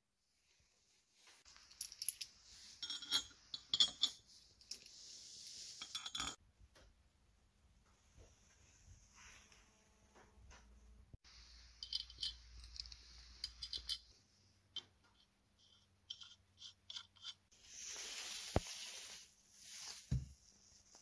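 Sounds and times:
metal nuts and washers clinking: 1.5 - 5.0, 5.7 - 6.4, 11.6 - 14.2.

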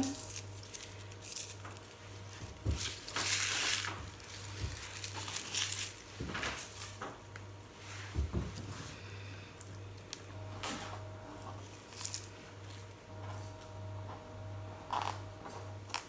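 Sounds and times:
garlic skins rustling: 0.0 - 7.0.

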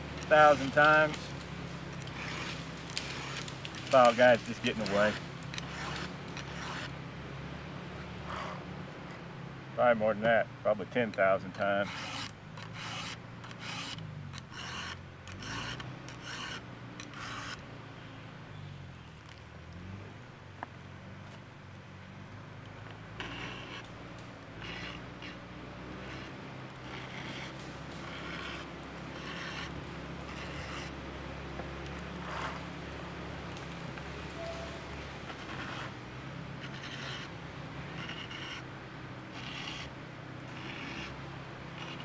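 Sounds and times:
file rasping on chainsaw chain: 0.1 - 1.4, 2.0 - 6.9, 10.9 - 17.6, 23.2 - 23.9, 24.5 - 31.1, 31.8 - 32.8, 34.4 - 42.0.

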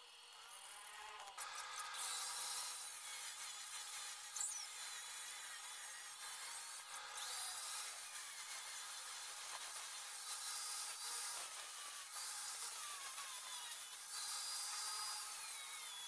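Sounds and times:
angle grinder grinding steel: 0.3 - 16.0.

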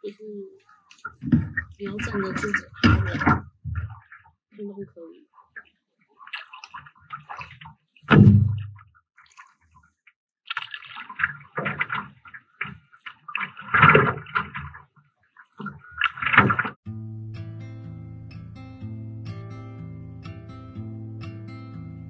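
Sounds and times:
paddle water splashing: 0.0 - 16.8
loud thump: 8.1 - 8.7.

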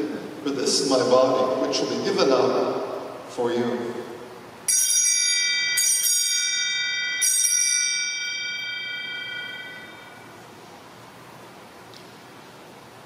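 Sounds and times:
altar bell ringing: 4.7 - 10.5.

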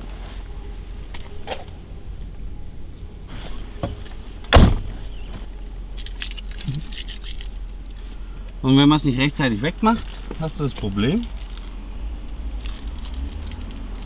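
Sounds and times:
loud thump: 3.8 - 5.0.

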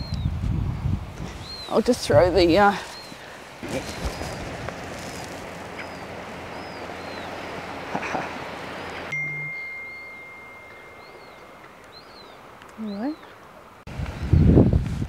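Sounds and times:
wind: 0.0 - 15.0
gentle surf hiss: 0.1 - 15.0
steady high pure tone: 9.1 - 12.5.

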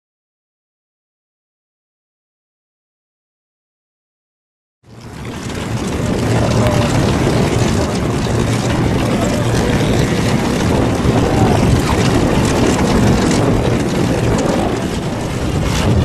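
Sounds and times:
aircraft engine rumbling: 4.9 - 16.0.

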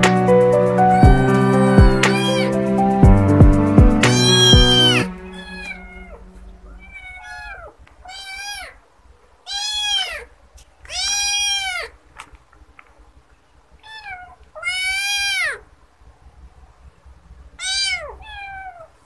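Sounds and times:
background music: 0.0 - 7.2
kitten meowing: 0.8 - 2.6, 4.0 - 8.8, 9.4 - 10.3, 10.9 - 12.0, 13.8 - 15.7, 17.6 - 19.0.

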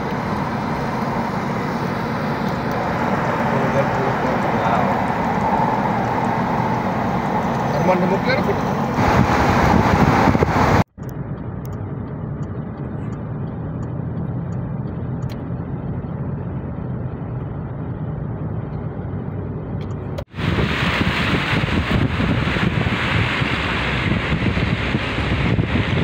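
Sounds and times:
car interior road noise: 0.0 - 26.0
heavy lorry approaching: 0.0 - 26.0
roadside wind and traffic: 0.0 - 26.0.

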